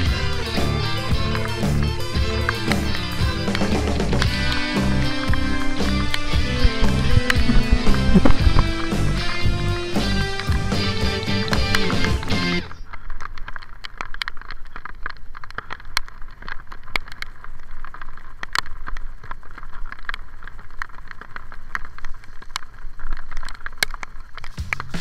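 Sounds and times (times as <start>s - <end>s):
low wind rumble: 2.2s - 12.9s.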